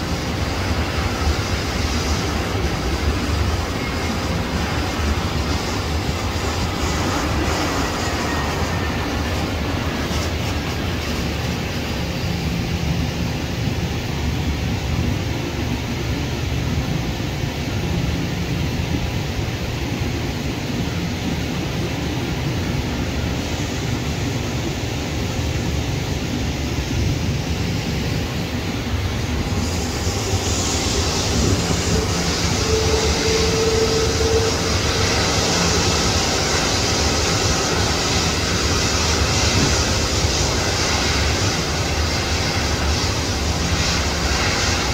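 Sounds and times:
jet airliner engine rumble: 0.0 - 44.9
jet engine whine: 0.0 - 44.9.

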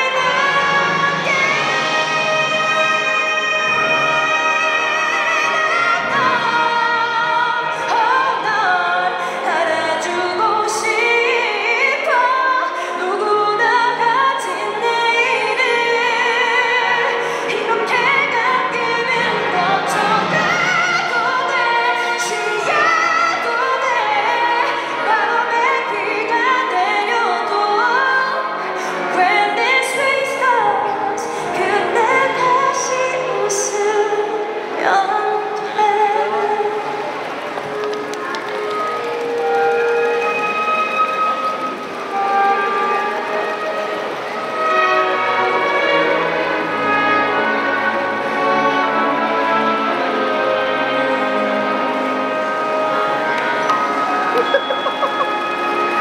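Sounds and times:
woman singing a ballad: 0.0 - 37.0
symphony orchestra: 0.0 - 56.0.

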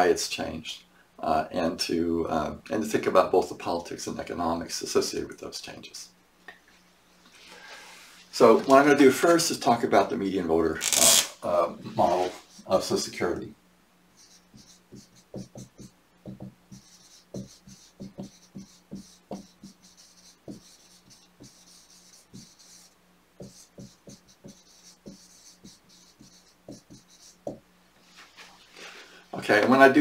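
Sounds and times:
faint steady hum: 0.0 - 30.0
marker writing on whiteboard: 14.2 - 27.6.

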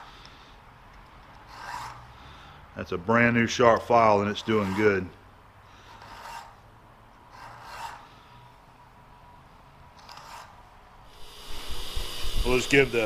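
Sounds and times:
file rasping on screw threads: 1.4 - 2.2, 4.2 - 6.7, 7.3 - 8.3, 10.0 - 10.6.

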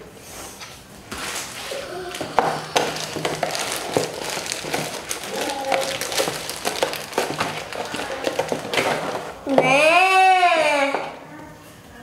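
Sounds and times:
plastic wrapper crinkling: 1.1 - 9.6.

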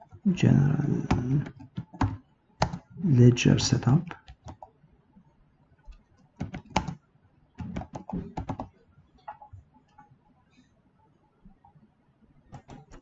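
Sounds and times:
keyboard key clicks: 6.4 - 7.0, 7.6 - 8.7, 12.5 - 13.0.

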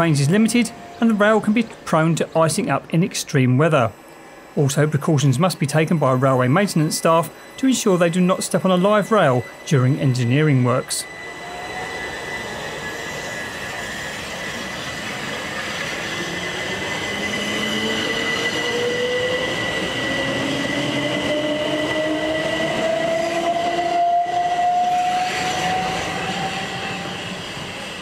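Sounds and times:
electric train motors whining: 0.0 - 28.0
rail and wheel noise: 0.0 - 28.0
thin high steady tone: 3.6 - 14.8.

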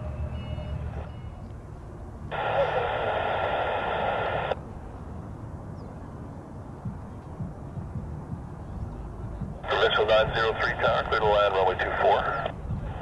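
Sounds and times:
jet engines rumbling: 0.0 - 13.0
air traffic control radio: 2.3 - 4.6, 9.6 - 13.0.

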